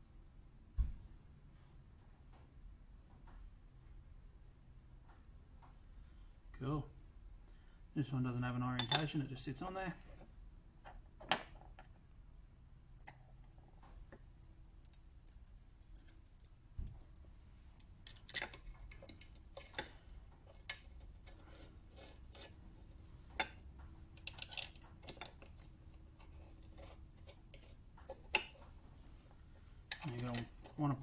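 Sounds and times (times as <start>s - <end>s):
metal parts clicking and tapping: 13.0s - 17.2s, 17.8s - 22.5s, 23.2s - 28.8s, 29.8s - 31.0s.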